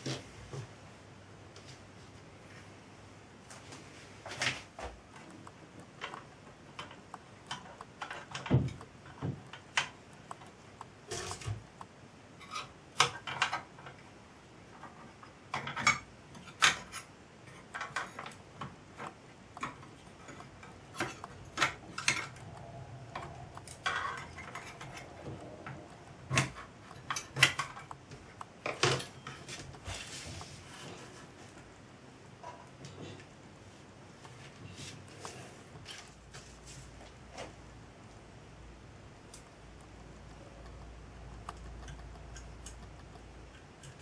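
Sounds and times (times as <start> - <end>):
screwdriver clicking on metal plates: 5.1 - 14.0, 14.8 - 29.8.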